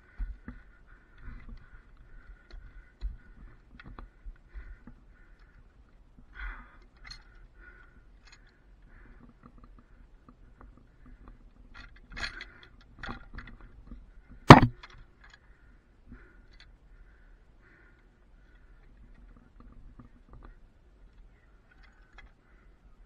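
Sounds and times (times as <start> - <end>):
sharp loud metal clank: 14.5 - 14.8.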